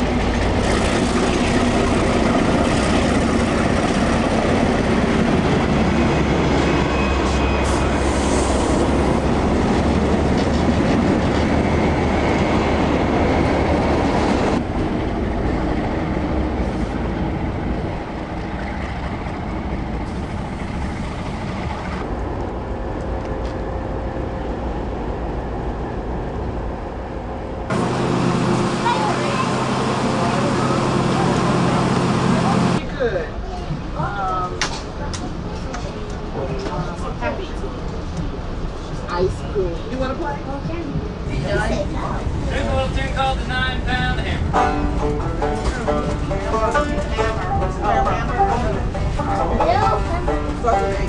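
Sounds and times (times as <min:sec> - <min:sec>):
train clattering on rails: 0:00.0 - 0:23.8, 0:39.8 - 0:51.0
diesel locomotive running: 0:00.0 - 0:51.0.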